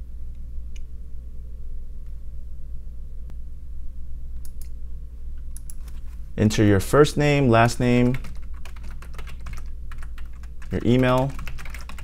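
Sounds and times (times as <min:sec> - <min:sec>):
steady low hum: 0:00.0 - 0:12.0
computer mouse clicks: 0:04.4 - 0:04.8, 0:05.5 - 0:06.0.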